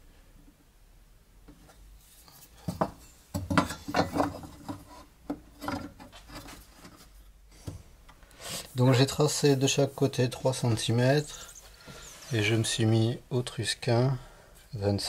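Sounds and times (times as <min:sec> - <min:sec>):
wood and metal tools knocking: 0:02.6 - 0:06.1
scraping and rubbing: 0:03.7 - 0:07.2.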